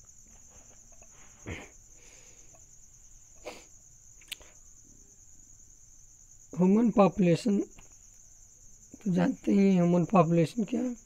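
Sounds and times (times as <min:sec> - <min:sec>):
faint high-pitched whine: 0:00.0 - 0:11.0
sharp click: 0:04.2 - 0:04.5.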